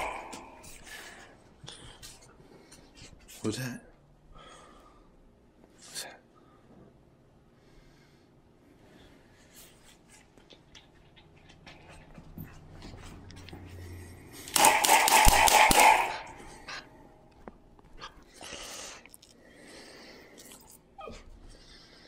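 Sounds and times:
harsh puppy burst: 0.0s - 0.7s
puppy play noises: 9.6s - 14.5s.

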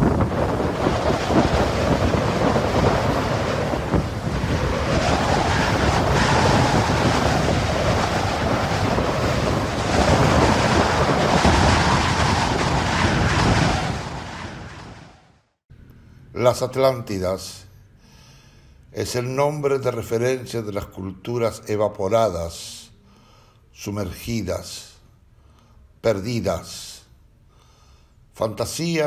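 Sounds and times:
strong wind on microphone: 0.0s - 15.4s.

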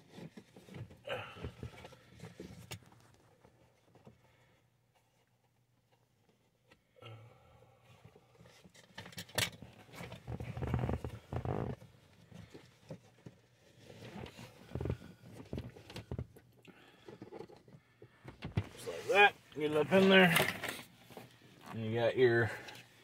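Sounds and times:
rustling and scraping of filter: 8.4s - 23.0s.

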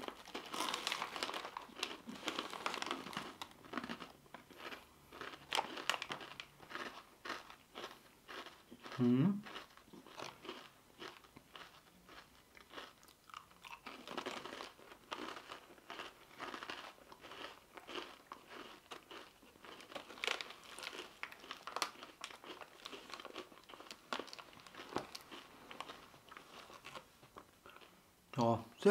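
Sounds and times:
person chewing crunchy crackers: 0.0s - 28.0s.

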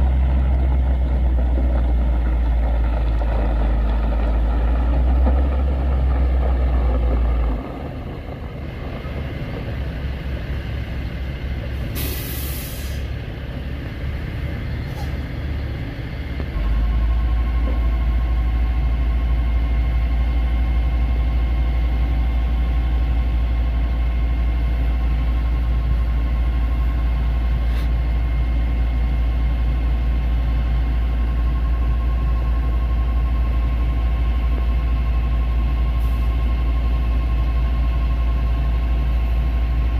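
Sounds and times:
truck diesel engine running: 0.0s - 39.9s
loud hiss of air: 11.9s - 13.1s.

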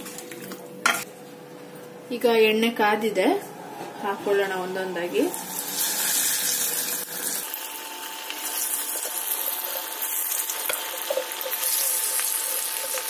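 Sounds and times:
chicken sizzling in hot oil: 5.4s - 13.0s.

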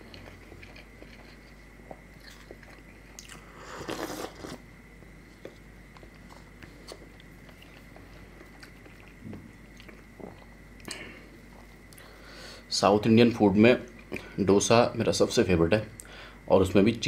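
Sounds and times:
chewing: 0.0s - 4.6s, 5.4s - 12.1s.

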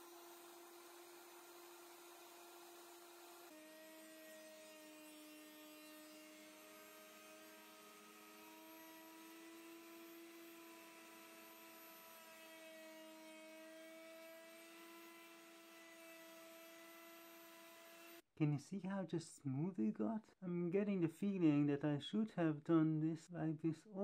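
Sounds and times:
router cutting wood: 0.0s - 18.2s.

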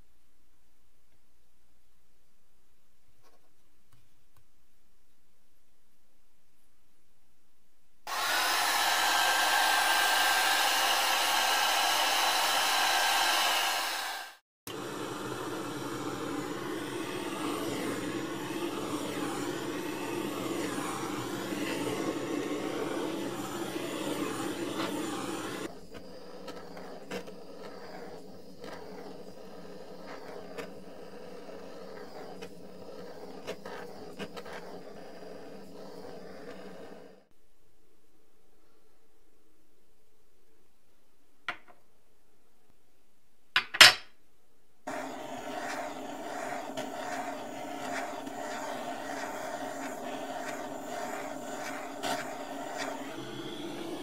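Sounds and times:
heat gun blowing: 8.1s - 25.7s, 44.9s - 54.0s.

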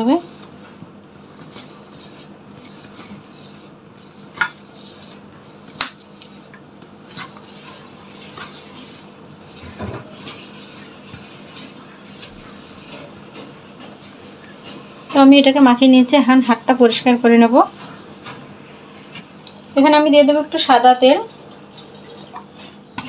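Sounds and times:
hand mixing in a bowl: 0.0s - 23.0s.

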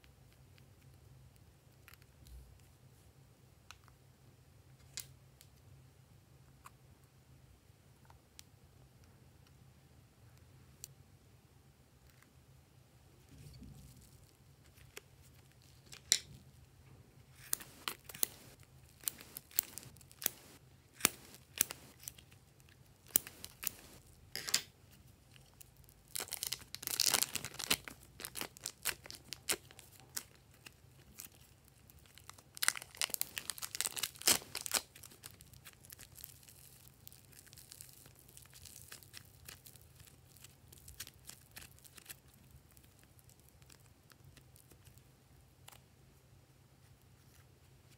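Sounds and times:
plastic bags crinkling: 17.4s - 22.2s, 23.0s - 24.1s, 25.4s - 42.8s.

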